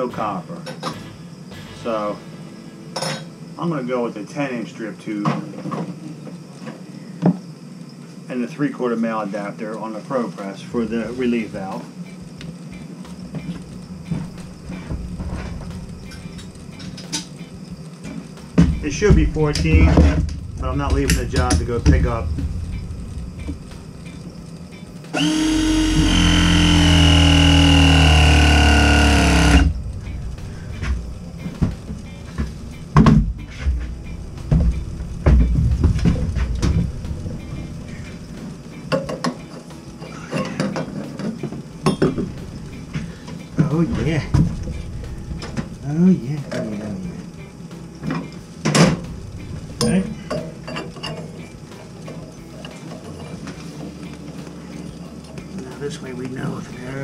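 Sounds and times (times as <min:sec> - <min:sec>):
steady low hum: 0:00.0 - 0:57.0
low handling rumble: 0:12.2 - 0:38.9, 0:41.6 - 0:51.7
copper pipe clinking: 0:48.1 - 0:53.4.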